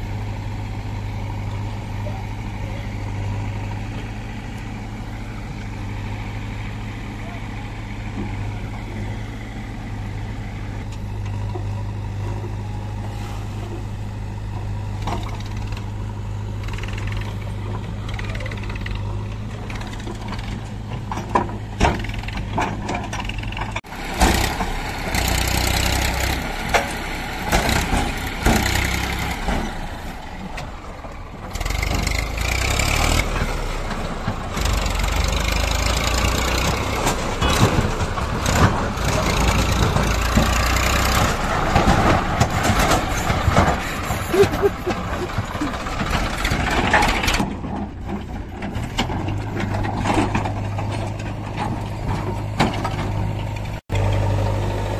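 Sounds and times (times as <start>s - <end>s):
tractor diesel engine running: 0.0s - 54.9s
knocks and rattles: 16.6s - 29.9s, 34.2s - 54.3s.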